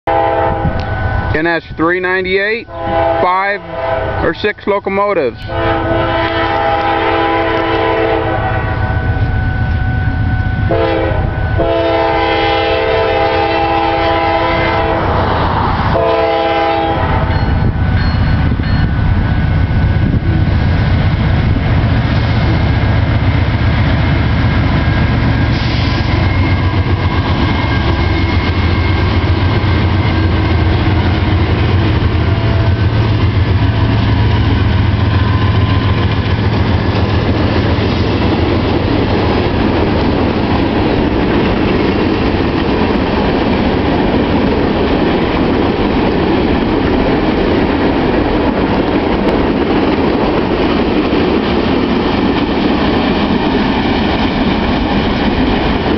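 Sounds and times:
train horn blasts: 0:00.0 - 0:04.5, 0:05.4 - 0:15.2, 0:15.9 - 0:17.9, 0:32.2 - 0:33.0
diesel locomotives rumbling past: 0:00.0 - 0:55.9
train wheels clacking on rails: 0:17.1 - 0:55.9.

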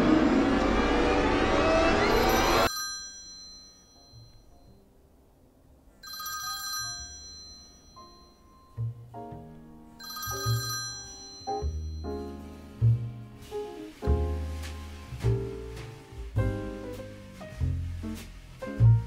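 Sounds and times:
phone ringtone chiming: 0:02.2 - 0:04.7, 0:06.0 - 0:08.8, 0:10.0 - 0:12.2
background music with bass and piano: 0:08.1 - 0:19.0.

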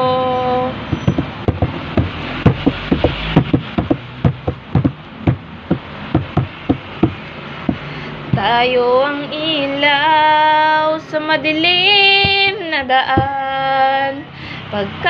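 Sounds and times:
short low knocks: 0:00.9 - 0:08.5, 0:13.1 - 0:13.4.

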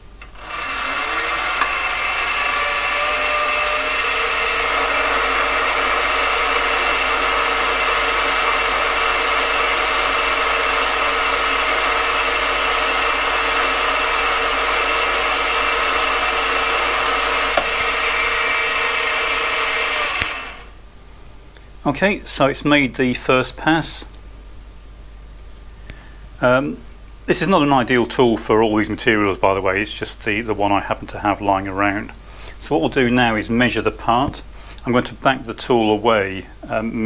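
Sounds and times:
lathe motor whining: 0:00.0 - 0:20.8.

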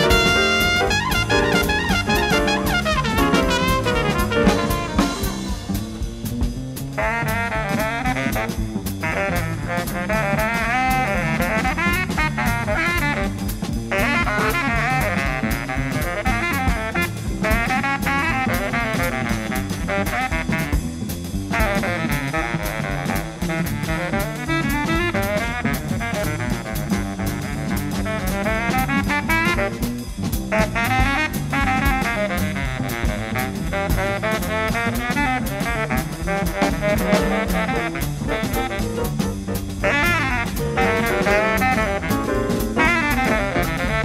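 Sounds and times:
drums and cymbals: 0:00.0 - 0:44.0
saxophone playing fast lines: 0:00.0 - 0:44.0
upright bass: 0:00.0 - 0:44.0.

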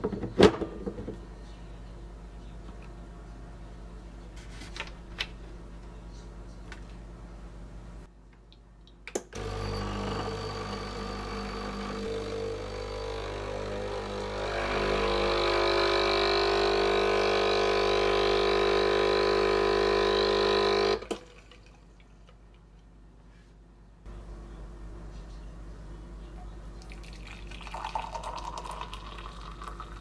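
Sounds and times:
coffee machine pump humming: 0:09.4 - 0:22.6, 0:26.2 - 0:30.0.

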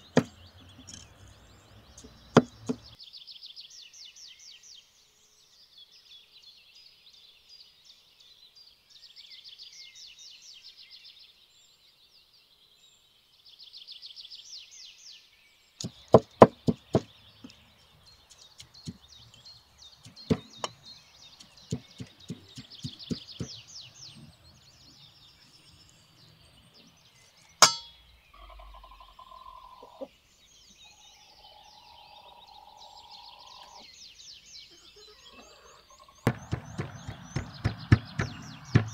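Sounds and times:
cleaver chopping meat on wood: 0:00.0 - 0:00.4, 0:02.0 - 0:03.0, 0:15.8 - 0:17.1, 0:18.3 - 0:19.2, 0:20.0 - 0:20.8, 0:21.4 - 0:23.7, 0:27.6 - 0:27.8, 0:36.3 - 0:38.9
chickens calling: 0:00.0 - 0:03.0, 0:15.8 - 0:25.6, 0:27.6 - 0:30.2, 0:30.9 - 0:33.9, 0:34.6 - 0:38.9
small birds twittering: 0:00.0 - 0:38.9.

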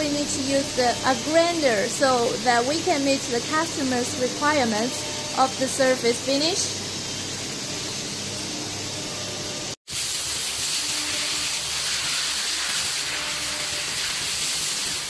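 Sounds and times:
hiss of coolant spraying: 0:09.9 - 0:15.0.

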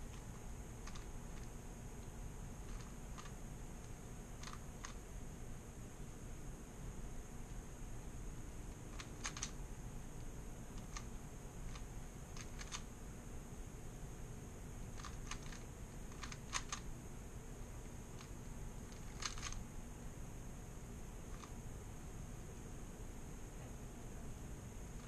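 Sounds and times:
puzzle cube plastic clicks: 0:00.1 - 0:01.5, 0:02.7 - 0:05.0, 0:08.9 - 0:09.6, 0:11.7 - 0:12.9, 0:14.9 - 0:16.9, 0:18.9 - 0:19.6.

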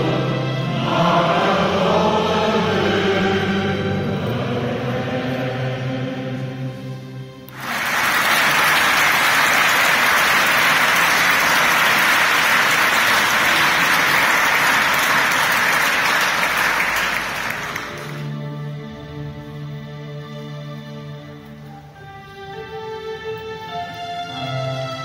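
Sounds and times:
music: 0:00.0 - 0:25.0
congregation applauding: 0:07.5 - 0:18.3.

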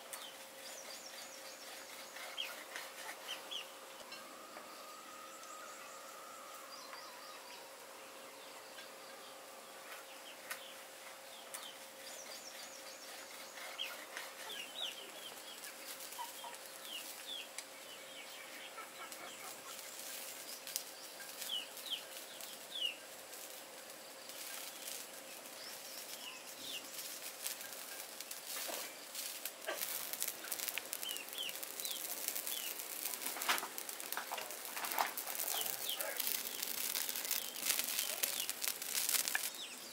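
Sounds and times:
faint steady hum: 0:00.0 - 0:39.9
birds chirping: 0:00.1 - 0:39.9
chickens clucking: 0:13.6 - 0:17.1, 0:18.4 - 0:20.3, 0:29.4 - 0:39.5.

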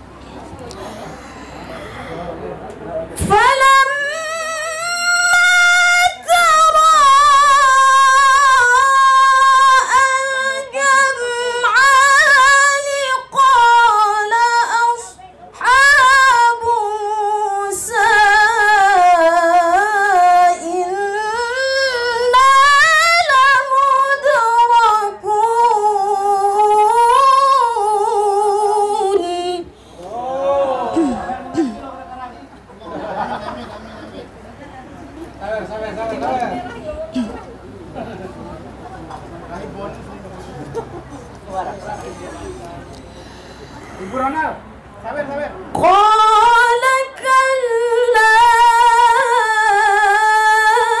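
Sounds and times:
woman reciting melodically: 0:03.2 - 0:29.8, 0:45.7 - 0:51.0.

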